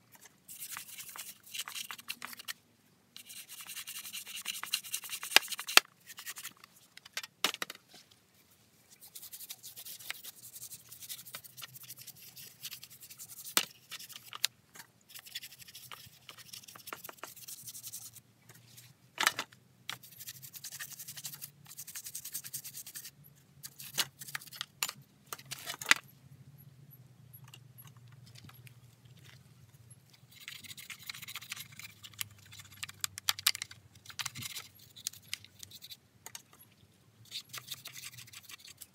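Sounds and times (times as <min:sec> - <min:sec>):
brush scrubbing plastic: 0:00.0 - 0:02.6, 0:03.2 - 0:06.9, 0:08.9 - 0:14.5, 0:15.1 - 0:18.9, 0:19.9 - 0:24.6.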